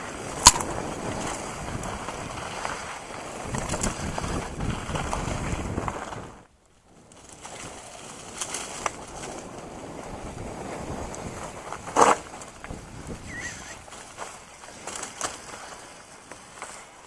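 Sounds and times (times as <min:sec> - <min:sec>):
wind buffeting microphone: 0:00.0 - 0:06.4, 0:08.7 - 0:14.2
tyres rolling on dirt trail: 0:00.0 - 0:17.0
bike knocks and rattles: 0:07.3 - 0:16.8.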